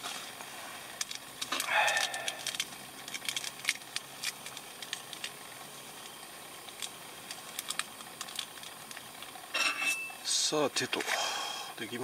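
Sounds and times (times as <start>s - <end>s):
paper sachet crinkling: 1.5s - 5.2s.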